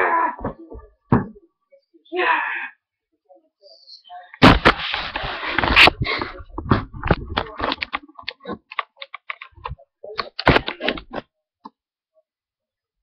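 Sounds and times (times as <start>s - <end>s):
dull thuds: 4.4s - 7.6s
webcam handling clicks and knocks: 7.1s - 11.2s.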